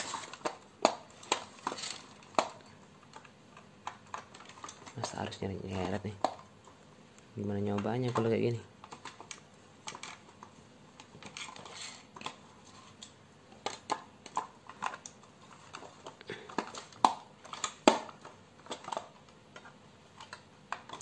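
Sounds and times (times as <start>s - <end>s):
plastic clicks and knocks: 0.3s - 6.5s, 13.6s - 21.0s.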